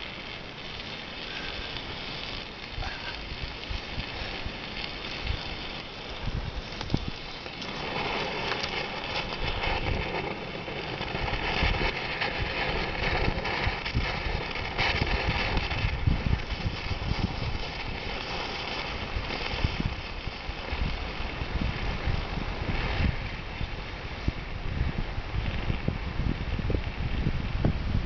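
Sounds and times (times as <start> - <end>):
road flare burning with hiss: 0.0 - 28.0
wind buffeting microphone: 0.0 - 28.0.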